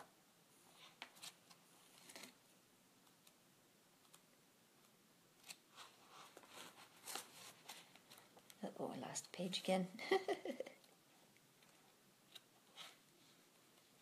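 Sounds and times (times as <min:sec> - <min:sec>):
book pages being leafed through: 0:05.4 - 0:08.4.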